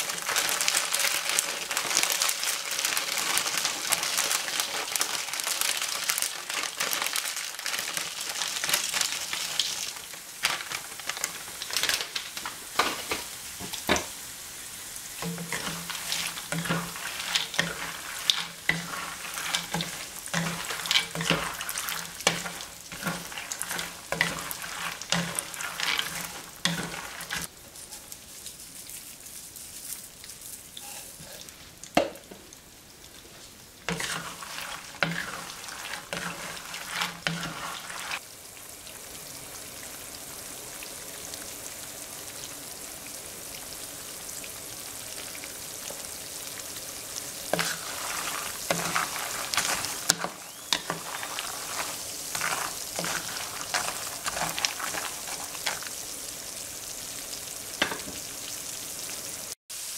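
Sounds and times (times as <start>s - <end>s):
spatula stirring nuts in a pan: 0.0s - 13.2s, 15.2s - 31.6s, 33.8s - 38.2s, 47.3s - 56.2s
food frying in oil: 0.0s - 59.9s.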